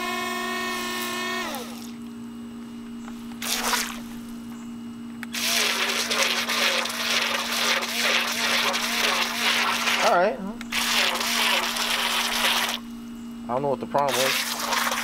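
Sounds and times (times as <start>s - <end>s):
small electric motor whining: 0.0s - 2.1s, 5.3s - 12.9s
water splash: 3.4s - 4.1s, 14.1s - 15.0s
water churning and splashing: 5.4s - 10.1s, 10.7s - 12.8s, 14.1s - 15.0s.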